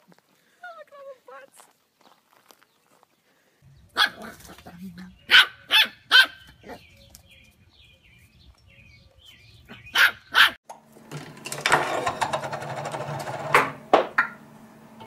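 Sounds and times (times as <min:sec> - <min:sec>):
puppy yapping: 0:04.0 - 0:04.7, 0:05.3 - 0:06.8, 0:09.7 - 0:10.6.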